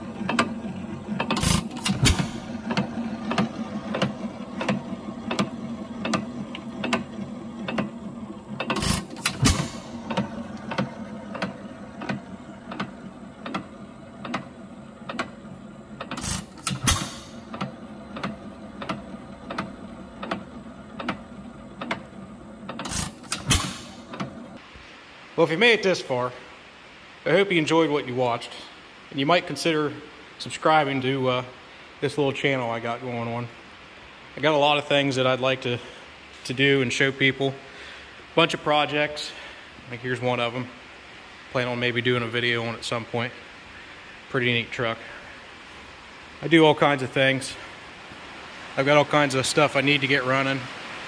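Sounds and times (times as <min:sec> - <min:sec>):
engine firing bangs: 0:00.0 - 0:12.8, 0:15.9 - 0:19.6, 0:22.7 - 0:24.2
old engine clicking while coasting: 0:00.0 - 0:24.6.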